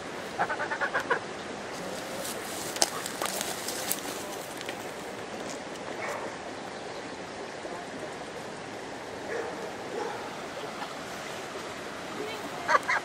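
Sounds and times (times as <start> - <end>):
creek water running: 0.0 - 13.0
waterfowl calls: 0.3 - 1.3.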